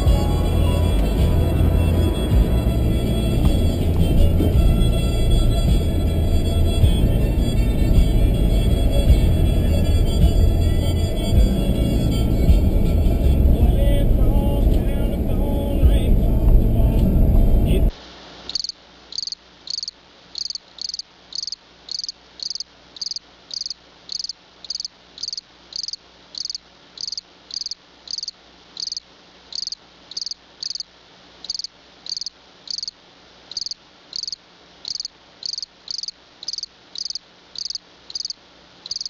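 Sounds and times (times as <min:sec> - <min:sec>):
insect chirping: 0:18.5 - 0:39.0.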